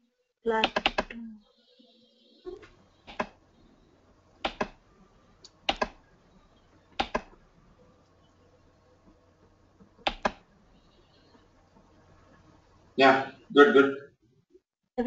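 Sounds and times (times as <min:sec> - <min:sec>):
computer mouse clicking: 0:00.6 - 0:01.2, 0:02.6 - 0:03.4, 0:04.4 - 0:04.8, 0:05.4 - 0:06.0, 0:06.9 - 0:07.4, 0:09.8 - 0:10.5
faint steady hiss: 0:01.5 - 0:14.0.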